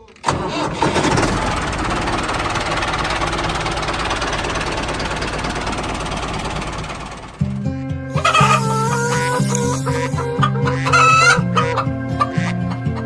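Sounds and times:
small tractor engine running: 0:00.1 - 0:11.0
music: 0:07.4 - 0:13.0.

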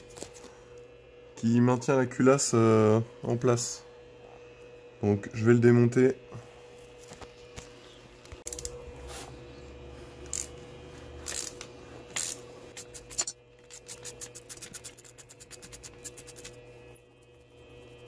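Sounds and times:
ratchet wrench clicking: 0:10.3 - 0:10.5, 0:11.2 - 0:16.6.

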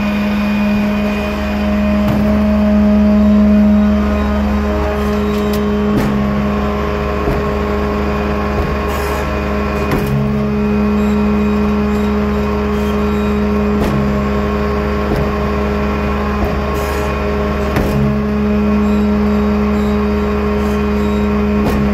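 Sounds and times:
machine drone: 0:00.0 - 0:21.9.

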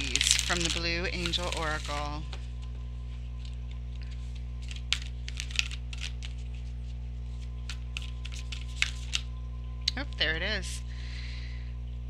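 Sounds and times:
cards being shuffled: 0:00.0 - 0:02.7, 0:03.4 - 0:09.3
steady low hum: 0:00.0 - 0:12.0.

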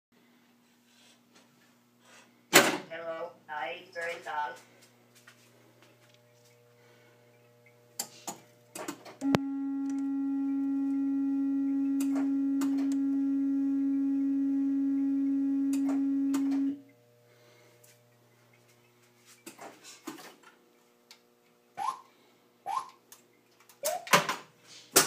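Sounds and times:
steady pure test tone: 0:09.2 - 0:17.0.

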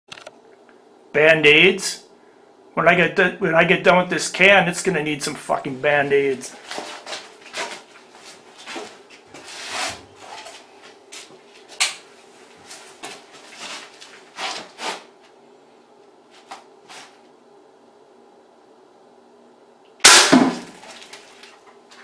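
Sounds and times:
scrapes and rubs of handling: 0:06.4 - 0:15.3, 0:16.3 - 0:17.3.

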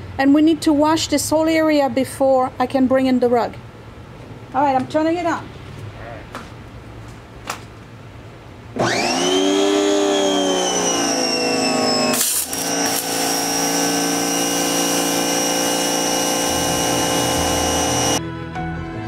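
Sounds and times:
electric pressure washer whining: 0:08.8 - 0:18.2.

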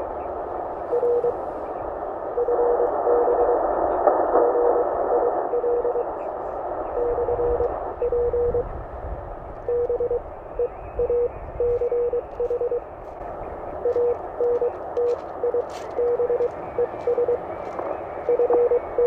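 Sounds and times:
receiver hiss: 0:00.0 - 0:19.0
morse code tone: 0:00.9 - 0:01.6, 0:02.4 - 0:03.6, 0:04.3 - 0:06.2, 0:06.9 - 0:08.7, 0:09.6 - 0:12.9, 0:13.8 - 0:19.0.

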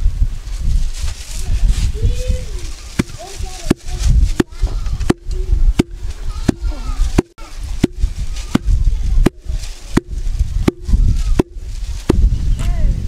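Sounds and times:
wooden pestle pounding in mortar: 0:03.0 - 0:09.4, 0:10.0 - 0:12.2.

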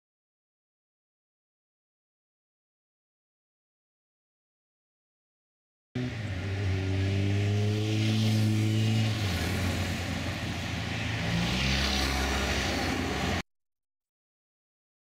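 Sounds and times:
motorcycle engines passing: 0:06.0 - 0:13.4.

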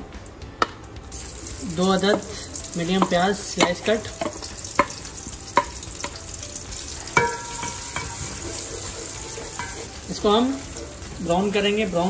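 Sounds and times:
onions sizzling in hot oil: 0:01.0 - 0:12.0
spatula knocking: 0:02.0 - 0:11.0.

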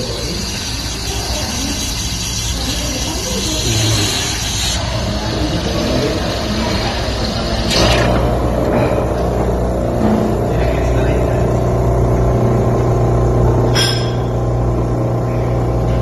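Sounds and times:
coffee machine frother hissing: 0:00.0 - 0:11.4.

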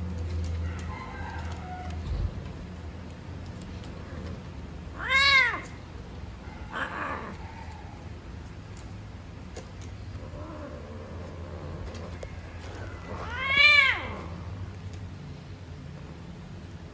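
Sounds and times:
cat yowling: 0:04.9 - 0:05.8, 0:06.5 - 0:08.0, 0:12.7 - 0:14.6.

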